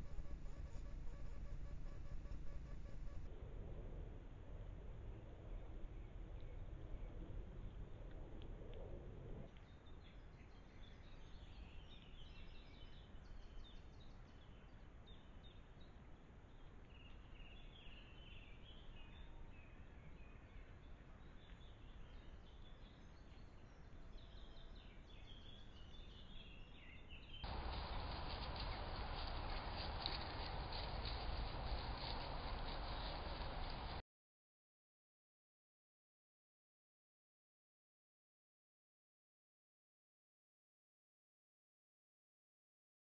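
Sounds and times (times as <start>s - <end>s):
small birds singing: 9.6s - 34.0s
background hiss: 27.4s - 34.0s.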